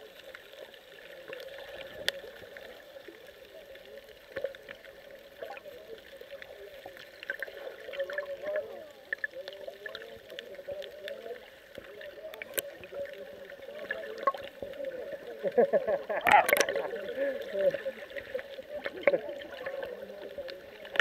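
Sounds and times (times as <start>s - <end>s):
muffled underwater gurgling: 0.0s - 21.0s
sharp clicks underwater: 9.1s - 13.0s, 13.8s - 14.7s, 16.1s - 17.0s, 18.2s - 21.0s.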